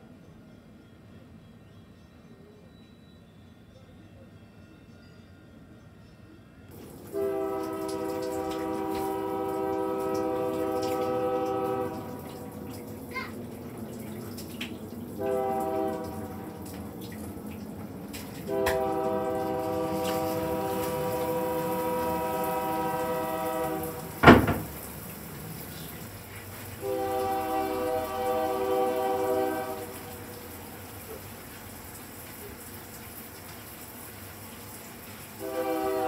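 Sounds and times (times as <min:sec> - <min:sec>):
locomotive air horn blasts: 0:07.1 - 0:12.4, 0:15.2 - 0:16.6, 0:18.4 - 0:24.2, 0:26.8 - 0:30.4, 0:35.4 - 0:36.0.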